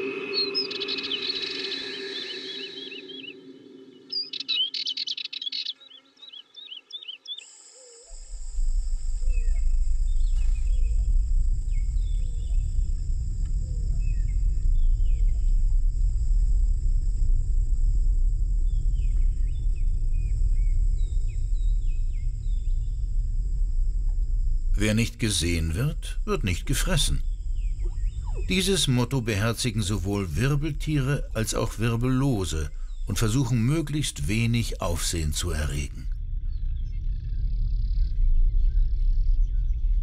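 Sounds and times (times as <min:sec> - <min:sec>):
bird chirps: 0:00.0 - 0:08.0
deep steady drone: 0:08.3 - 0:40.0
steady high whine: 0:08.3 - 0:40.0.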